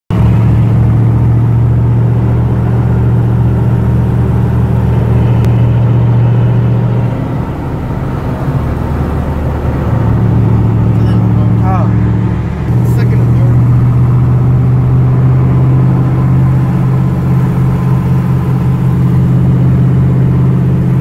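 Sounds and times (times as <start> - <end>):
car engine at raised revs: 0.1 - 21.0.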